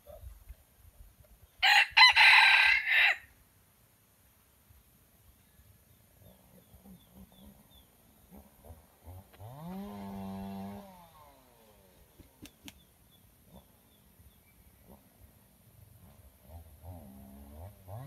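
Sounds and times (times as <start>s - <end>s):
rooster crowing: 1.6s - 3.3s.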